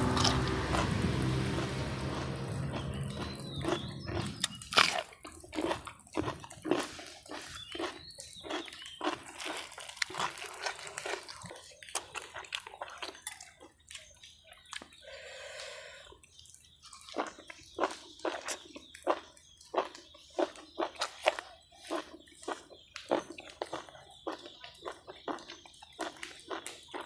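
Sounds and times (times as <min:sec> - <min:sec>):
loud crunches: 0:00.0 - 0:13.5
crisp bites and wet chewing: 0:02.5 - 0:15.0, 0:15.6 - 0:27.0.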